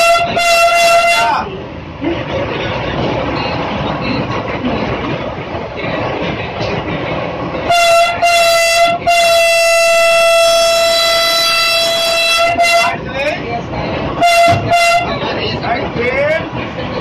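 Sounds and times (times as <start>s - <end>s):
train horn blasts: 0.0s - 1.4s, 7.6s - 13.0s, 14.2s - 15.2s
train running noise: 0.0s - 17.0s.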